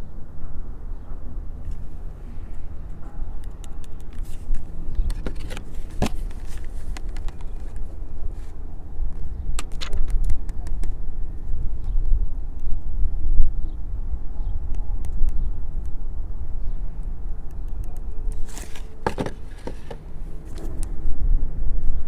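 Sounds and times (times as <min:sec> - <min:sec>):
wind on microphone: 0:00.0 - 0:18.5
plastic pistol handled against cardboard: 0:04.0 - 0:08.5, 0:18.3 - 0:20.9.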